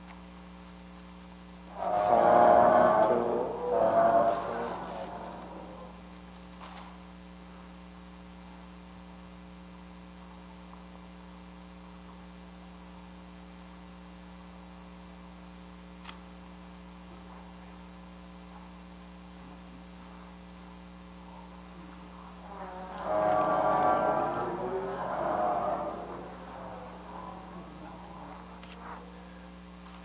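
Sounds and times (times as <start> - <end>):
electrical hum: 1.5 - 6.2, 21.3 - 30.0.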